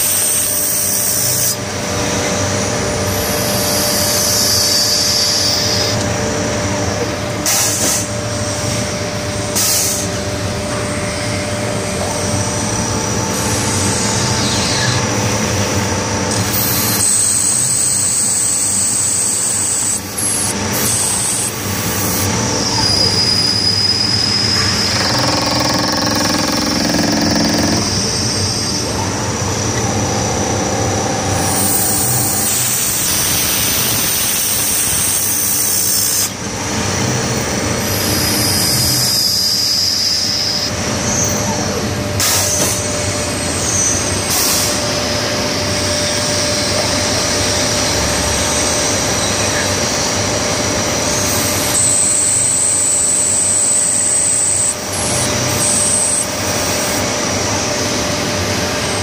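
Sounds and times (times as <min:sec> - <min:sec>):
lathe turning metal: 0:18.0 - 0:34.2.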